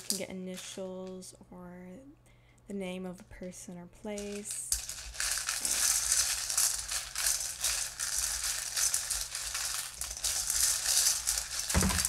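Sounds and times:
tiles rattling in a metal bowl: 0.0s - 1.2s, 4.1s - 12.0s.

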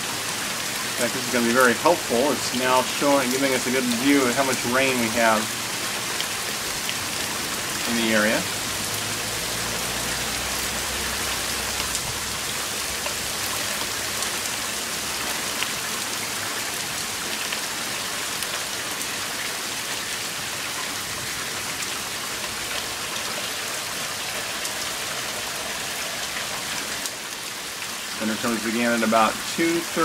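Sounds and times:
heavy rain on pavement: 0.0s - 30.0s.

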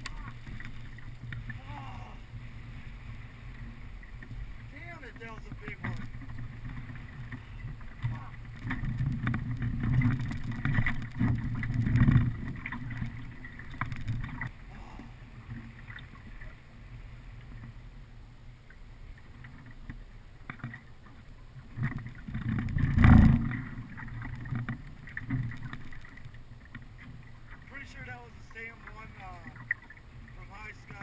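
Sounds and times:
water lapping against boat hull: 0.0s - 31.0s.

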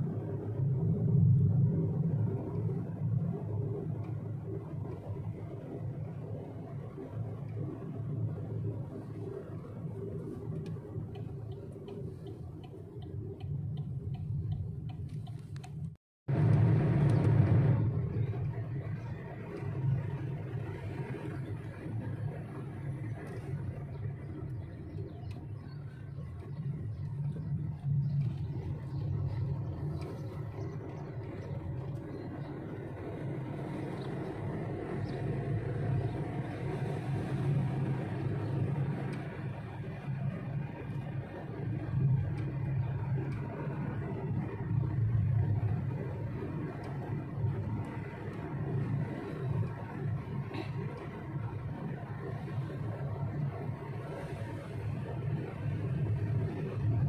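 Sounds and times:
car engine idling: 0.0s - 57.0s
car road noise: 0.0s - 57.0s
turn signal clicking: 10.5s - 17.3s.

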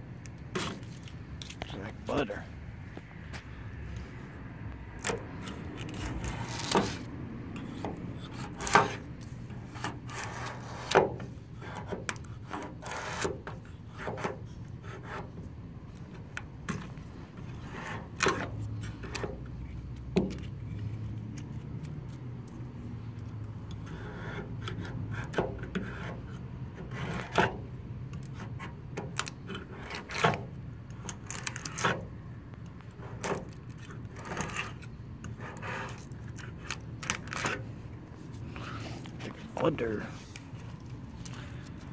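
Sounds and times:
blade scraping paint off metal: 0.5s - 1.1s, 5.0s - 15.4s.

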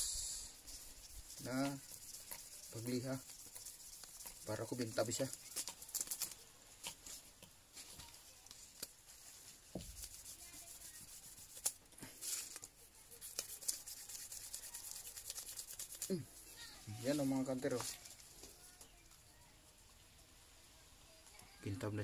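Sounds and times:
metal scratching on sandpaper: 0.4s - 6.4s, 9.2s - 18.2s.

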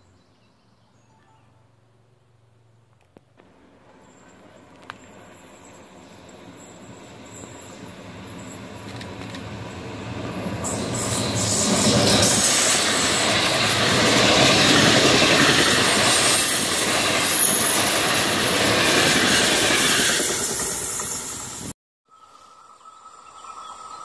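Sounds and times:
train wheels rumbling on rails: 3.4s - 21.7s
high wheel squeal: 4.0s - 9.0s, 9.6s - 14.7s, 15.4s - 21.7s.

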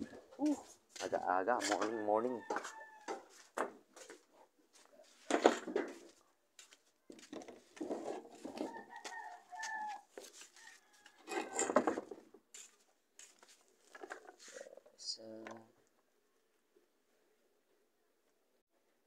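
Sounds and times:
rooster crowing: 1.6s - 3.4s, 8.6s - 11.8s.

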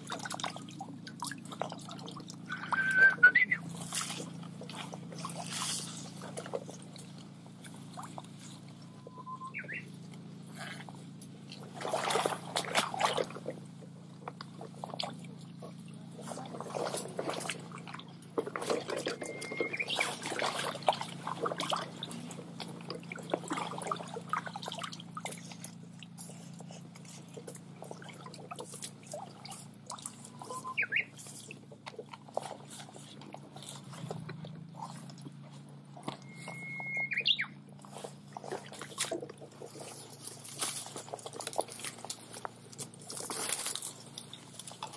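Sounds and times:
steady low hum: 0.0s - 44.9s
water splashing and sloshing: 0.0s - 44.9s
bird singing whistled phrases: 2.5s - 3.6s, 8.9s - 9.9s, 19.2s - 20.2s, 30.3s - 31.1s, 36.2s - 37.6s.

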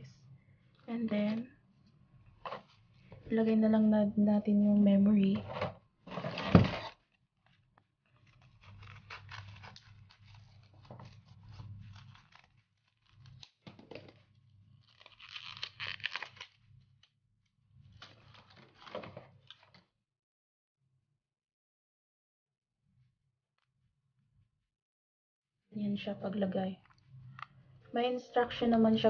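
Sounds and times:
plastic packaging tearing and crinkling: 6.1s - 7.1s, 8.1s - 16.7s, 17.9s - 19.8s.

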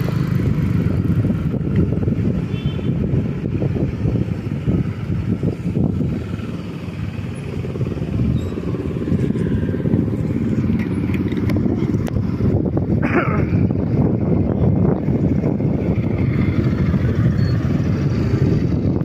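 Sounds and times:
motorcycle engine drone: 0.0s - 19.0s
wind rumble on microphone: 0.0s - 19.0s.

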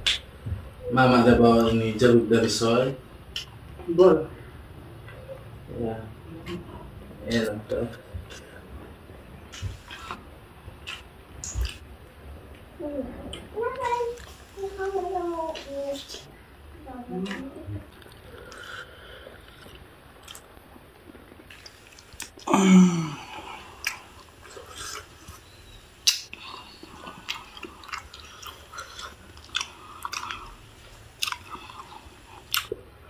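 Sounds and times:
wet mouth clicks and smacks: 3.3s - 3.6s, 10.8s - 11.8s, 32.4s - 32.8s
person chewing wet food: 3.3s - 3.8s, 7.9s - 12.6s, 17.2s - 33.0s
short falling vocal sound: 22.4s - 23.4s.

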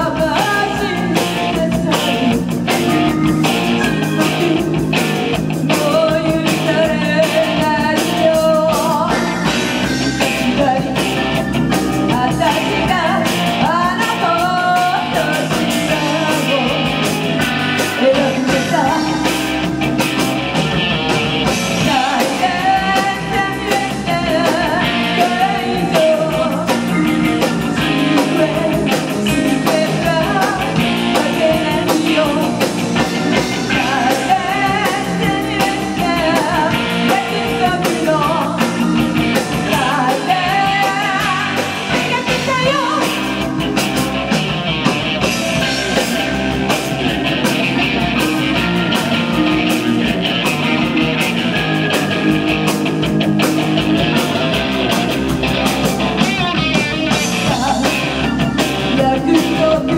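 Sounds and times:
woman singing lead: 0.0s - 20.8s, 21.4s - 44.3s, 55.6s - 59.9s
drums: 0.0s - 59.9s
electric bass: 0.0s - 59.9s
electric guitar: 0.0s - 59.9s
synthesizer keyboard: 2.8s - 5.2s.

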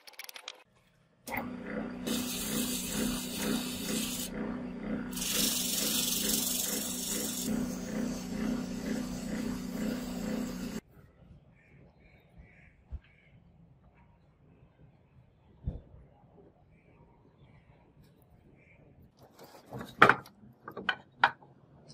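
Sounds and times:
lathe humming: 1.3s - 10.8s.

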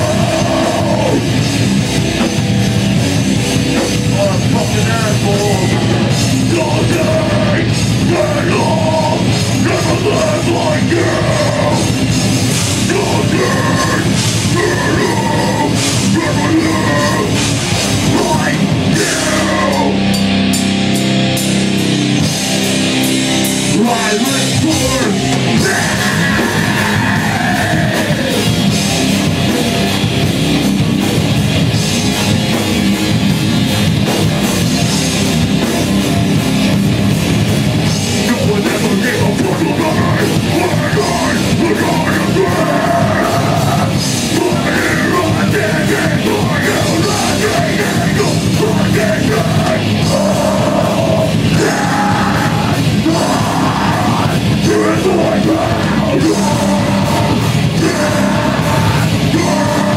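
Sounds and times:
person singing: 0.0s - 1.4s, 4.1s - 12.0s, 12.8s - 20.2s, 23.7s - 28.6s, 38.2s - 59.9s
bass guitar: 0.0s - 59.9s
distorted electric guitars: 0.0s - 59.9s
fast drumming: 0.0s - 59.9s.

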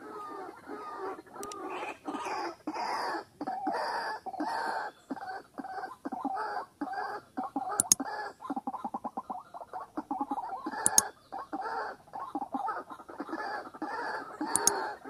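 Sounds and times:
waterhen croaking calls: 0.0s - 15.0s
sharp double click: 7.8s - 8.0s, 10.8s - 11.1s, 14.5s - 14.8s.

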